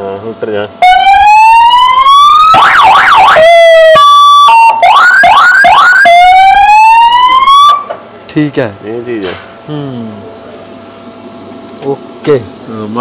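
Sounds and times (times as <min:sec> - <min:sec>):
electronic siren wailing and yelping: 0:00.8 - 0:07.8.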